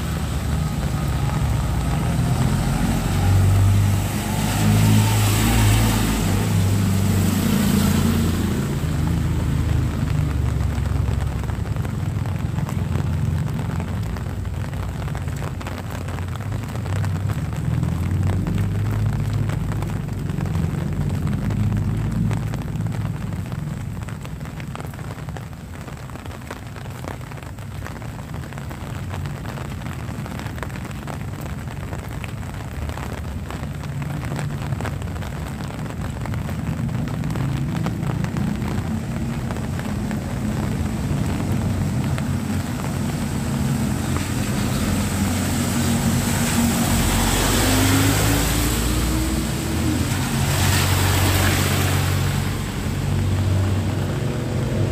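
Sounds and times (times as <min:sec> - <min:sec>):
tyre hiss on wet road: 0:00.0 - 0:11.8, 0:36.5 - 0:54.9
light rain pattering: 0:00.0 - 0:54.9
vehicle engine hum: 0:00.0 - 0:54.9.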